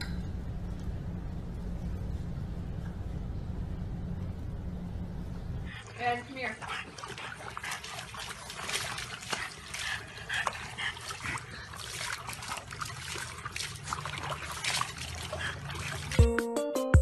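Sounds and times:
water splashing in a tub: 5.7 - 16.4.

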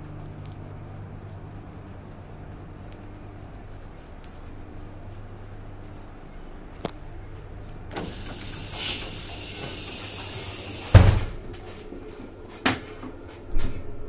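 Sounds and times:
train carriage hum: 0.0 - 13.8
sliding door hissing: 8.0 - 11.4
door closing with thump: 10.8 - 11.5.

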